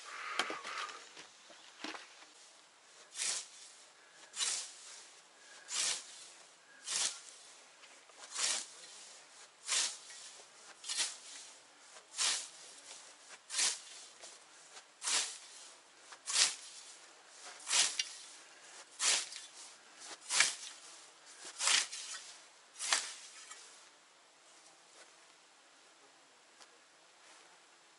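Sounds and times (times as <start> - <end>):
scythe swishing through grass: 2.4 - 23.9.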